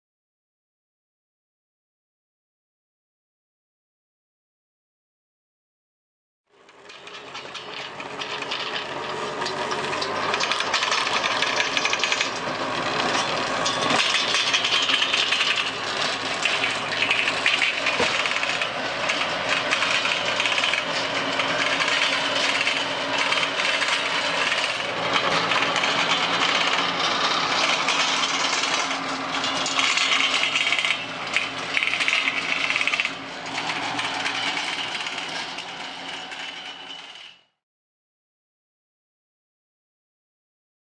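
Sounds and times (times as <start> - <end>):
rotary tiller rattling: 6.5 - 37.5
tractor engine under load: 6.5 - 37.6.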